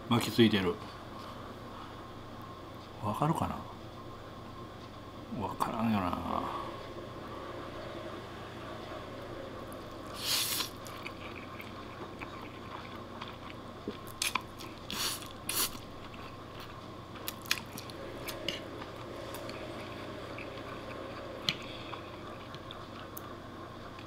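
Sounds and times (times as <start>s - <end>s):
spaghetti slurping: 10.0s - 13.6s
wet chewing: 10.0s - 23.3s.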